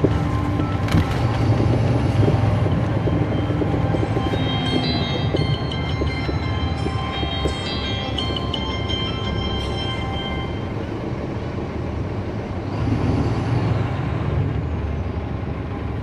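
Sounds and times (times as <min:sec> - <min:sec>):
bus diesel engine running: 0:00.0 - 0:16.0
bus rattles and clicks: 0:00.0 - 0:16.0
thin high tone: 0:03.1 - 0:10.9.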